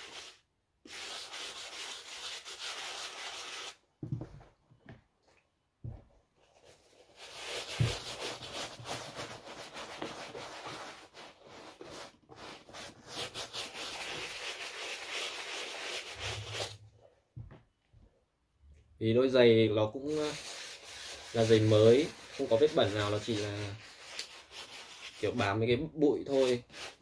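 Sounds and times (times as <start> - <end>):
brush scrubbing wet leather shoe: 6.6 - 16.8, 20.1 - 25.4, 26.3 - 27.0.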